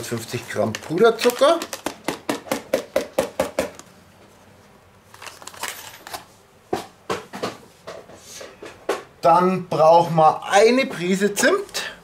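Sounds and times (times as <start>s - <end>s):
paper rustling: 0.0s - 2.0s, 5.1s - 6.3s
paper bag tapped over steel bowl: 0.7s - 3.8s.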